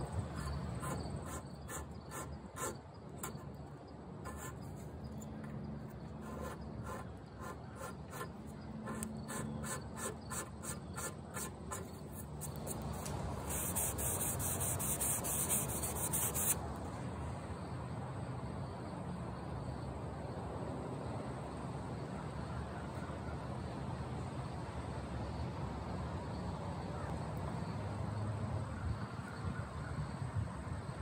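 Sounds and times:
blade scraping wood: 0.3 - 3.6, 4.2 - 16.6.

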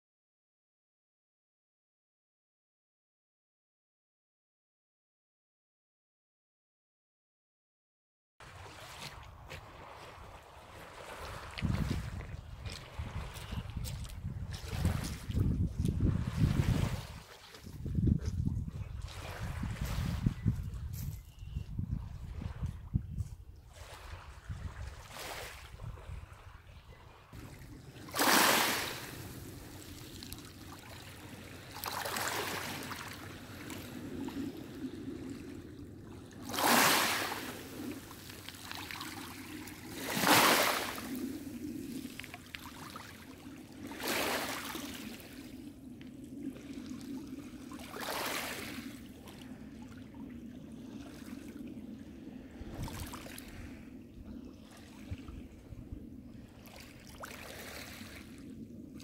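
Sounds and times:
waves lapping at shore: 8.4 - 21.0, 22.0 - 22.9, 23.6 - 59.0
low rush of water: 26.6 - 58.6.

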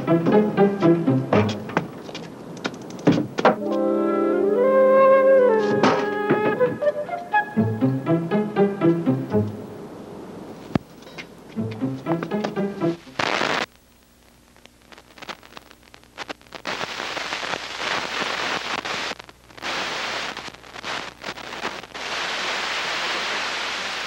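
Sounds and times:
faint scattered crackles: 1.6 - 3.8, 10.4 - 24.0
steady rushing hiss: 9.5 - 13.8, 14.8 - 24.0.

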